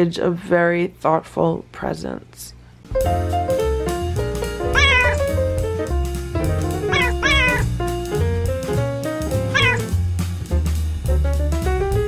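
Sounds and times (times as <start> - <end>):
music with bass line: 2.9 - 12.0
cat meowing: 4.7 - 5.3, 6.8 - 7.8, 9.5 - 9.9.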